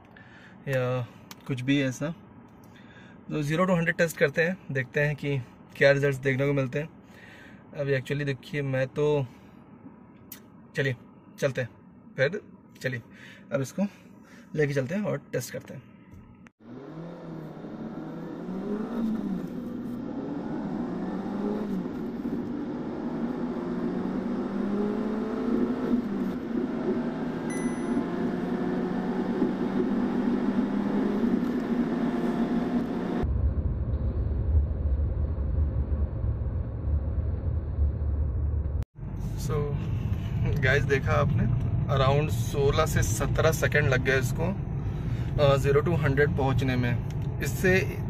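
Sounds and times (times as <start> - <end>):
car engine accelerating: 16.6 - 48.0
deep steady rumble: 32.9 - 48.0.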